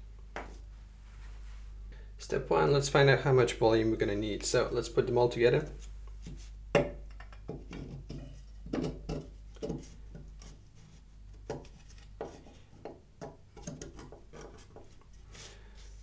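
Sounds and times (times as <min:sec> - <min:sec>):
metal rod knocking on plastic: 0:06.8 - 0:09.8.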